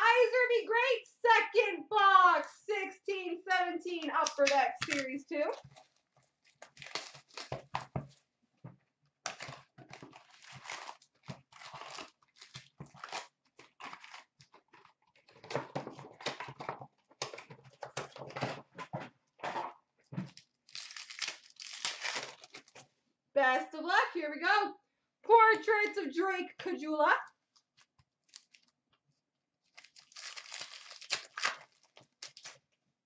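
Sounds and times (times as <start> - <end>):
plastic wrappers crinkling and tearing: 4.4 - 8.2, 9.2 - 18.4, 20.3 - 22.9, 27.5 - 28.8, 29.6 - 32.8.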